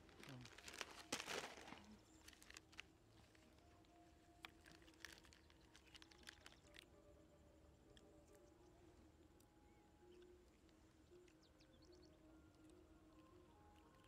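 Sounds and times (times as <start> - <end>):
plastic bag crinkling: 0.0 - 3.4, 4.4 - 6.8
faint clicks and crackles: 0.0 - 6.9.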